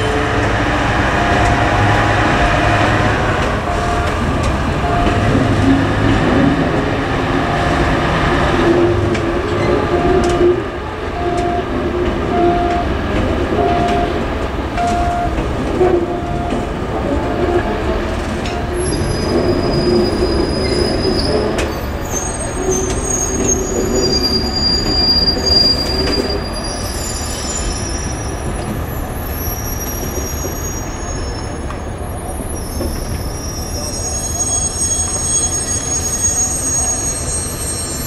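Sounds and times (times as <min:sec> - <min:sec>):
wheels rumbling on rail: 0:00.0 - 0:38.0
train wheels squealing: 0:18.4 - 0:38.0.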